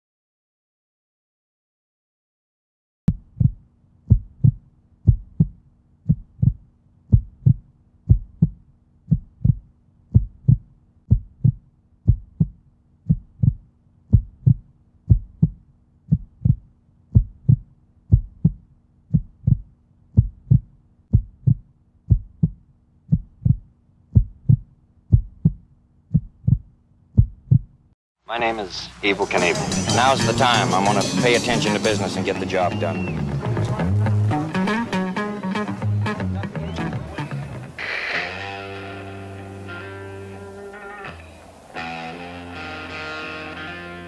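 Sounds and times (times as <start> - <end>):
heartbeat thumps: 3.1 - 27.8.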